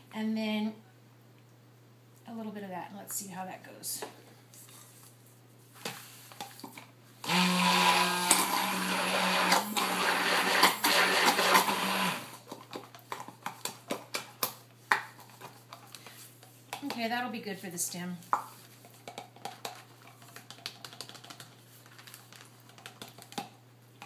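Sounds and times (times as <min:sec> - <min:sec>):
handheld blender running: 0:07.2 - 0:12.4.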